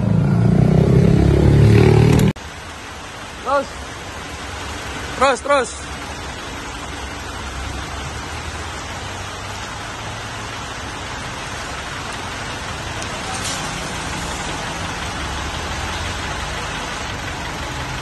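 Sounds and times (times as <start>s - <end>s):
rain on wet pavement: 0.0s - 18.0s
vehicle engine running: 6.7s - 18.0s.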